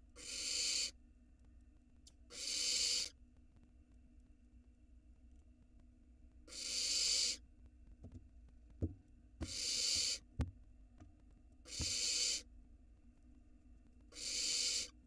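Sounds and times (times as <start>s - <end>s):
owl chicks hissing: 0.2s - 1.0s, 2.3s - 3.2s, 6.5s - 7.4s, 9.4s - 10.3s, 11.6s - 12.5s, 14.1s - 15.0s.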